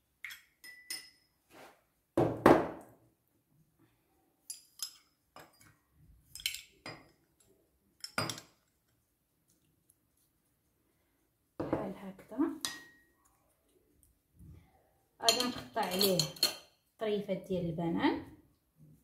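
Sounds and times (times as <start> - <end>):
metal spoon clinking on glass bowl: 0.2 - 1.3, 4.4 - 7.2, 8.0 - 8.6, 12.6 - 13.1, 15.2 - 16.8.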